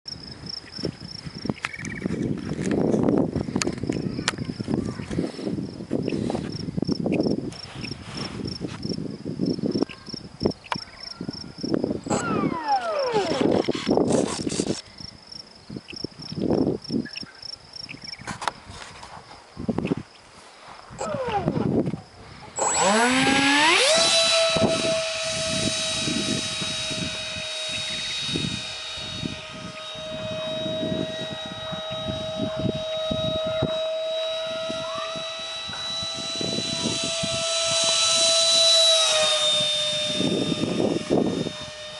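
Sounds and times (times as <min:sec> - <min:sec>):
insect chirping: 0:00.1 - 0:04.8, 0:05.4 - 0:41.9
falling whine: 0:11.6 - 0:14.8, 0:20.9 - 0:41.9
footsteps rustling through dry grass: 0:18.6 - 0:21.0.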